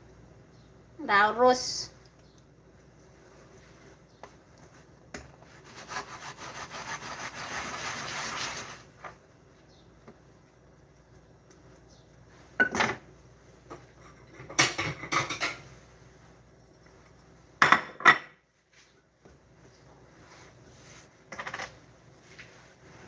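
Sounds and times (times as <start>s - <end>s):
dishes and utensils clattering: 12.6s - 13.1s, 13.7s - 15.7s.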